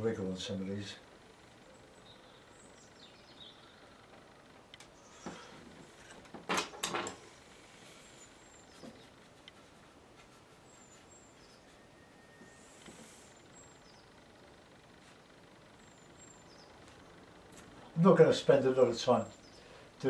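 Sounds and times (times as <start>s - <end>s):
brush scratching and dabbing: 7.6s - 13.4s.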